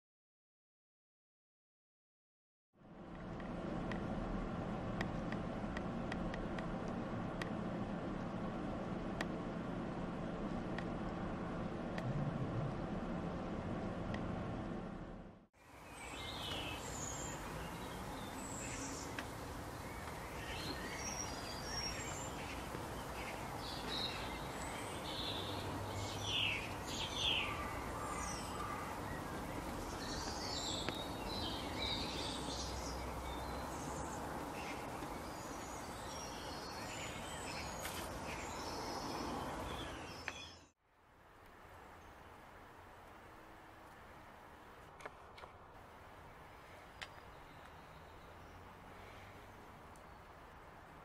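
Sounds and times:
steady background hiss: 2.8 - 51.0
bird chirps and calls: 15.8 - 40.7.

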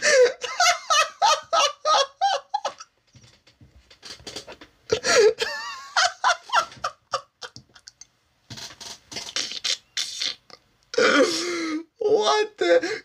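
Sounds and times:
man laughing hard: 0.0 - 2.9, 4.9 - 7.9.

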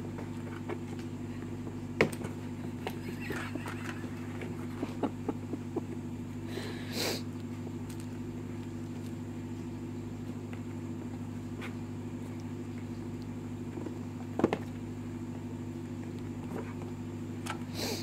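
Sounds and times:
steady low hum: 0.0 - 18.0
kittens tapping on cardboard box: 3.6 - 6.0.

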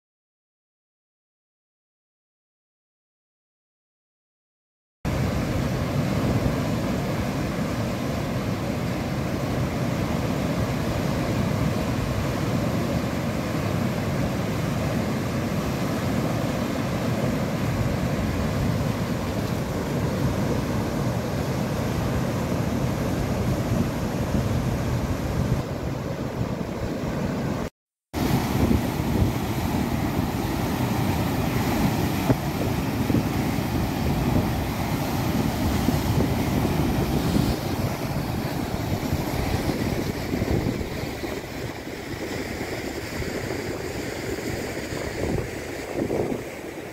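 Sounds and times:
water rushing and churning: 5.1 - 46.9
wind buffeting microphone: 28.2 - 46.9.

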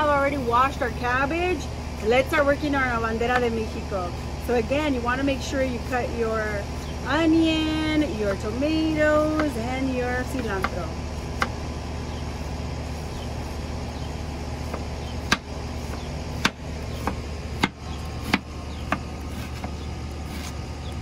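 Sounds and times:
low background hum: 0.0 - 21.0
knife chopping on wooden board: 11.4 - 11.6, 14.6 - 20.5.

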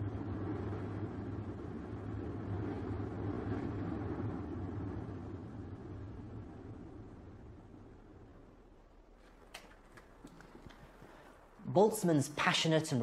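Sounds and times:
low rumbling drone: 0.0 - 9.2.

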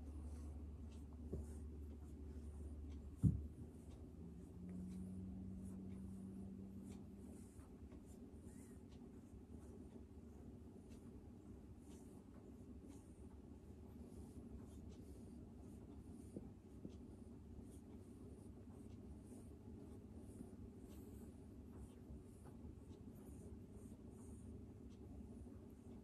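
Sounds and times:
fingers rustling cat fur: 0.0 - 26.0.

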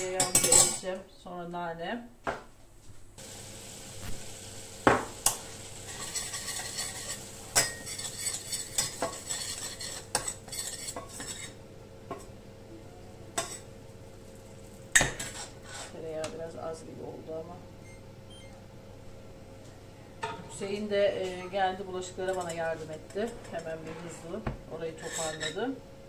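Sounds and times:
metal spoon clanking on pan: 0.0 - 0.8, 5.2 - 12.3
butter sizzling in a pan: 3.2 - 11.6.

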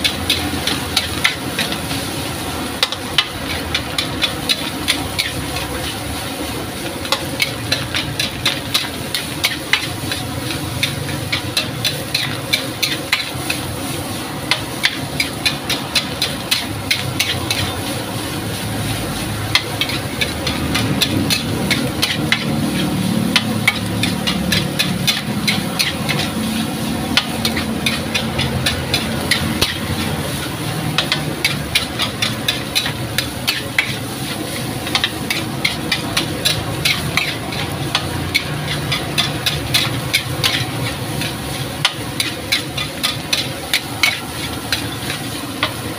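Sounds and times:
metal spatula scraping a wok: 0.0 - 45.9
sizzling hiss from pan: 0.0 - 45.9.

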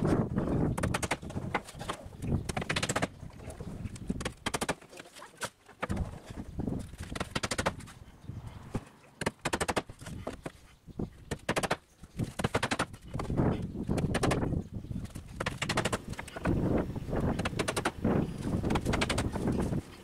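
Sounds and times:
hammer driving nails into wood: 9.2 - 10.5, 11.3 - 13.0.

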